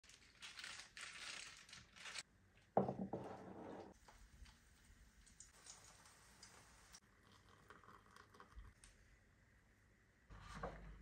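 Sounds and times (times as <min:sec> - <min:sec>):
crinkly rustling of flowers: 0:00.0 - 0:02.2.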